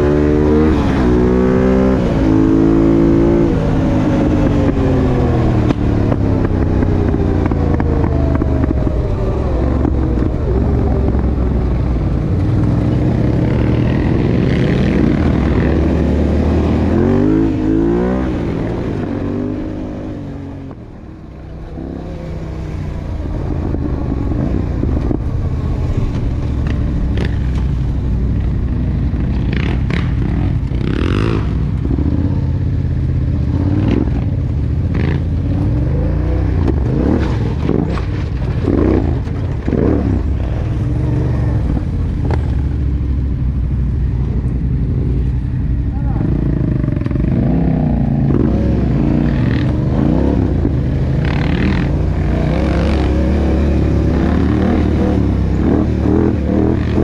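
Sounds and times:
quad engine revving: 12.6 - 20.0, 46.1 - 57.0
knocks and clatter over rough ground: 36.5 - 43.2.

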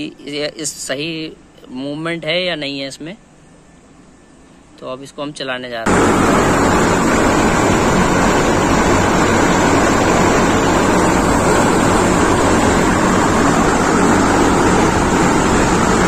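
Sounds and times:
low pump hum: 5.9 - 16.0.

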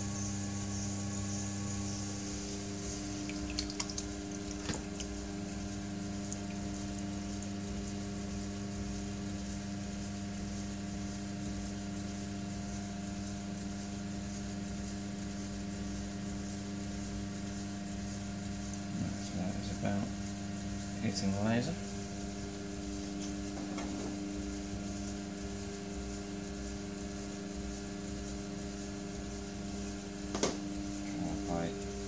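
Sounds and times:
pottery wheel humming: 0.0 - 32.0
wet hands squishing clay: 3.2 - 5.2.

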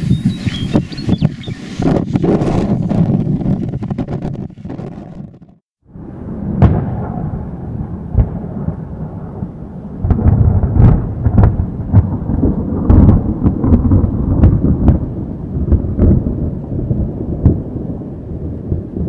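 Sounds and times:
low rumbling thunder: 0.0 - 19.0
rain: 7.3 - 19.0.

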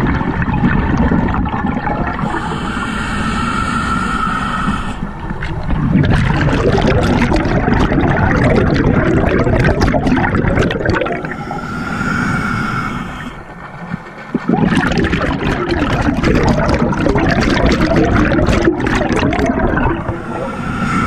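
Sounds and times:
bubbling exhalation: 0.0 - 3.8, 4.6 - 13.4, 14.3 - 21.0
hissing regulator inhalation: 2.2 - 5.2, 10.9 - 13.5, 18.3 - 21.0.

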